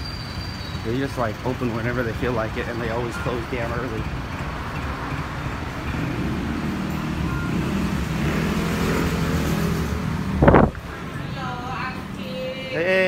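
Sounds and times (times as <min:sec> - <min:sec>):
road traffic: 0:00.0 - 0:13.0
loud thump: 0:10.4 - 0:10.8.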